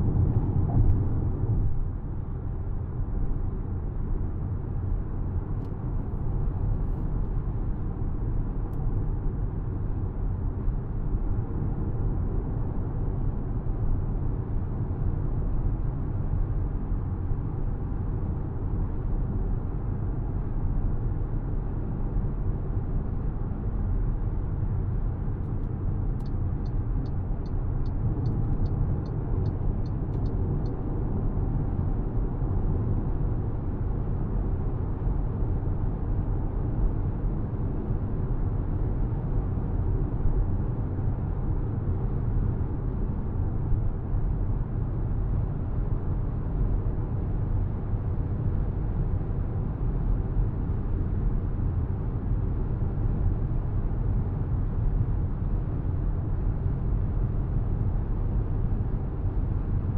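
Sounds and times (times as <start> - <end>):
car road noise: 0.0 - 3.6.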